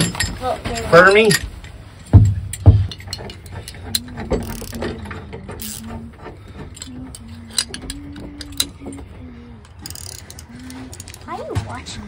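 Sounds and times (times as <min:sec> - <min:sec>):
ratcheting wrench clicking: 0:02.5 - 0:09.0, 0:09.6 - 0:11.3.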